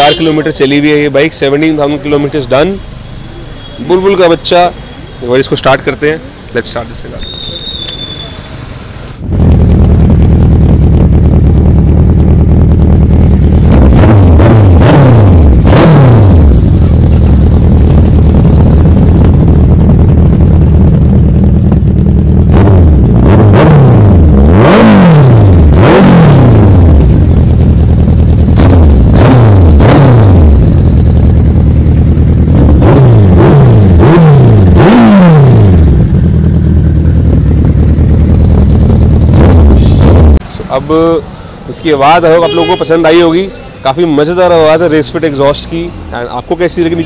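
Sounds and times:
motorcycle engine idling and revving: 8.5 - 43.4.

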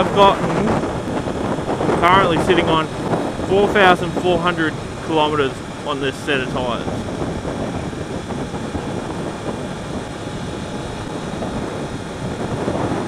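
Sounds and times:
motorcycle engine: 0.0 - 13.0
wind rush: 0.0 - 13.0.

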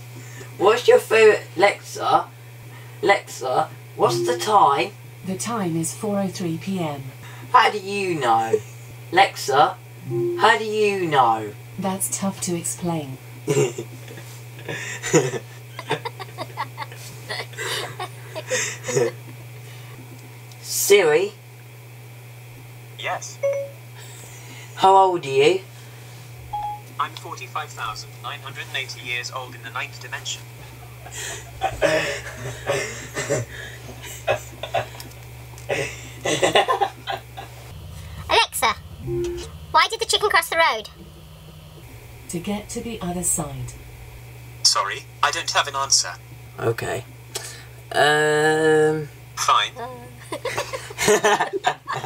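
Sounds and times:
steady low hum: 0.0 - 52.0
low hum: 4.0 - 7.4, 10.0 - 20.2, 37.0 - 47.9
person laughing: 13.5 - 13.9, 14.6 - 19.2, 30.7 - 35.1, 35.7 - 37.5, 50.2 - 52.0.

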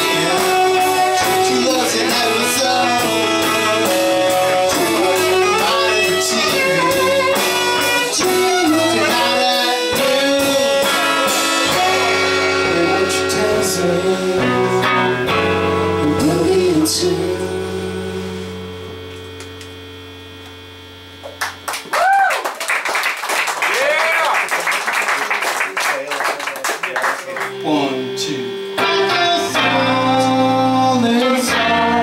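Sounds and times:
drum kit: 0.0 - 17.6
live band playing: 0.0 - 19.4, 26.9 - 32.0
held guitar chord ringing: 0.0 - 21.6, 27.3 - 32.0.

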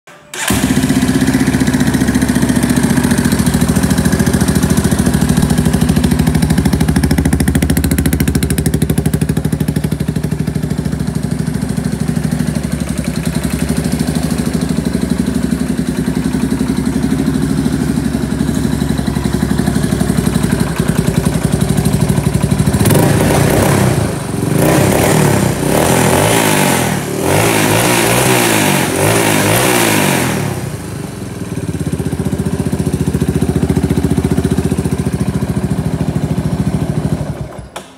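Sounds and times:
atv engine idling and revving: 0.3 - 37.9.

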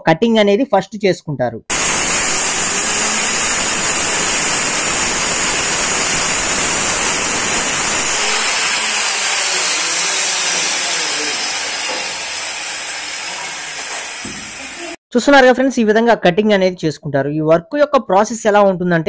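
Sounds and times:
high motor whine: 1.7 - 15.0
marble cutter grinding stone: 1.7 - 15.0.

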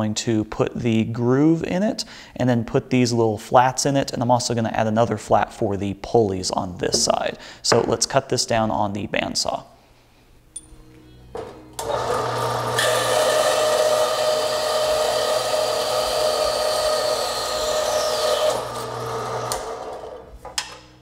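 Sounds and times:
bandsaw motor running: 11.8 - 20.3.

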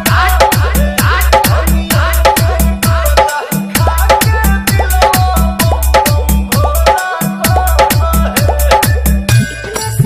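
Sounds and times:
hard-bass dance remix: 0.0 - 10.0.

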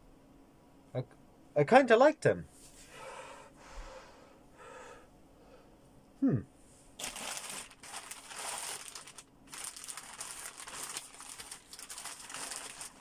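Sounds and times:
plastic bag crinkling: 7.0 - 13.0.

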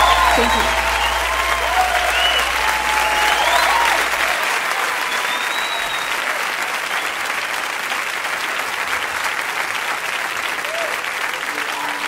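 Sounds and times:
whistles: 0.0 - 6.2
audience applauding: 0.0 - 12.0.

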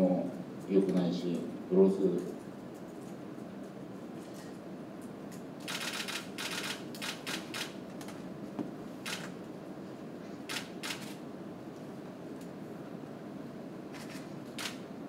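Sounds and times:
low room hum: 0.0 - 15.0
camera shutters firing: 5.6 - 7.8, 9.0 - 9.4, 10.5 - 11.2, 13.9 - 14.8.

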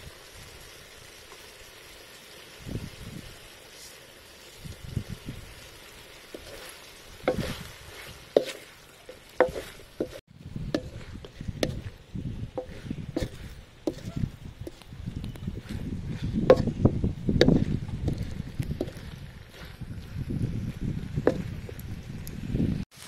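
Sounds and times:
food sizzling in a wok: 0.0 - 23.0
wooden spatula scraping a wok: 6.2 - 20.3.

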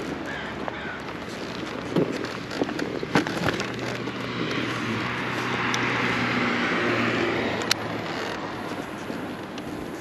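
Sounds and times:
motorcycle engine running: 0.0 - 10.0
road noise: 0.0 - 10.0
rushing wind: 0.0 - 10.0
sharp clicks: 7.5 - 8.8.

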